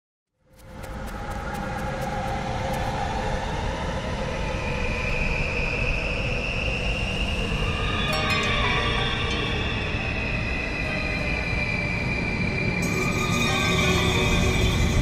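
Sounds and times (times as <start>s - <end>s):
low rumbling drone: 0.7s - 15.0s
sustained tones: 6.9s - 15.0s.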